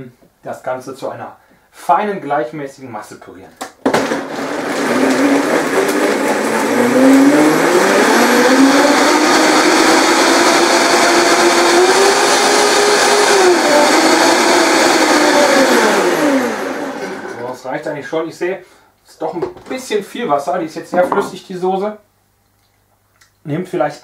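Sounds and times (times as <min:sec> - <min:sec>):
blender motor whining: 0:03.9 - 0:17.5.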